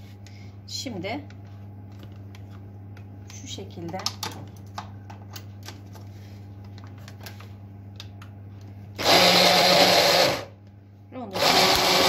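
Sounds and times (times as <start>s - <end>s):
hand blender motor running: 9.0s - 10.5s, 11.4s - 12.0s.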